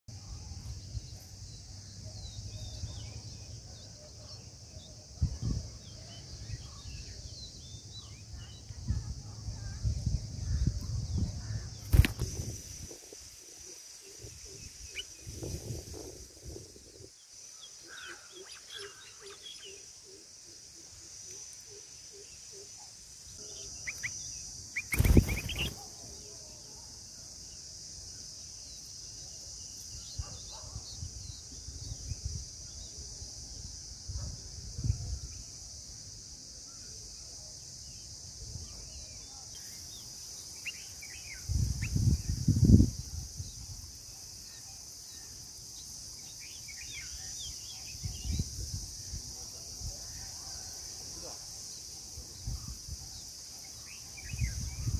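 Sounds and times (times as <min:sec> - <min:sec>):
high-pitched insect drone: 0:05.0 - 0:30.1.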